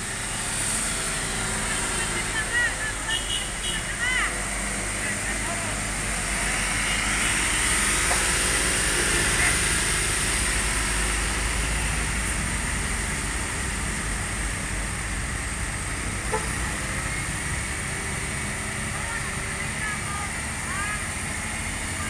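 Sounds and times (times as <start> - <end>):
diesel truck engine running: 0.0 - 22.0.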